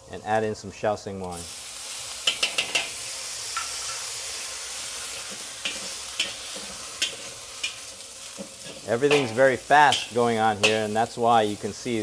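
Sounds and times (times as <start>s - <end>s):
vegetables sizzling in a wok: 0.0s - 12.0s
spatula scraping a wok: 1.9s - 10.9s.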